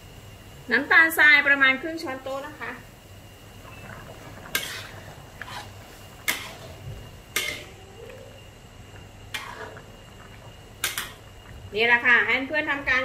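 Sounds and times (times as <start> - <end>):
metal spatula scraping wok: 4.5 - 7.8, 9.3 - 9.8.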